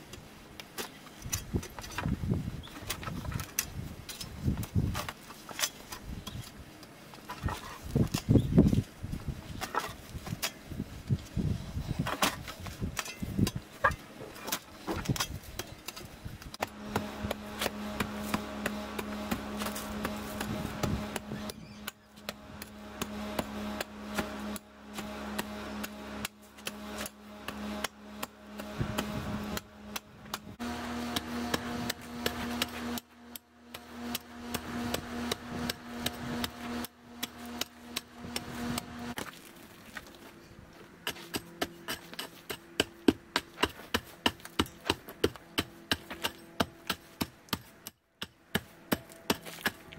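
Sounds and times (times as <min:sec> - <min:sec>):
shovel digging: 0:12.0 - 0:40.2, 0:41.0 - 0:49.9
steady droning tone: 0:16.6 - 0:40.7.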